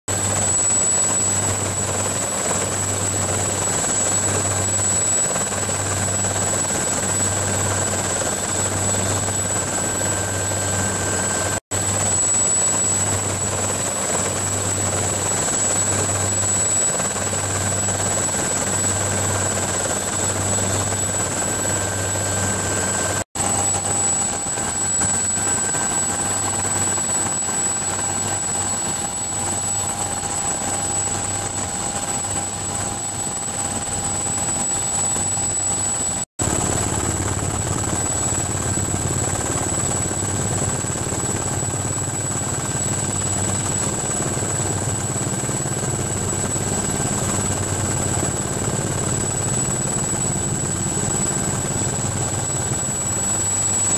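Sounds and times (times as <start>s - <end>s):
helicopter drone: 0.1s - 53.9s.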